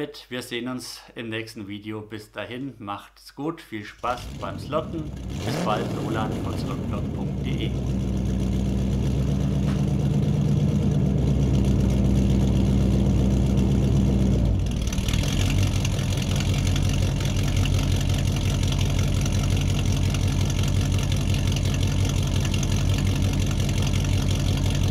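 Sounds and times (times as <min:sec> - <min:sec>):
engine idling: 0:04.0 - 0:24.9.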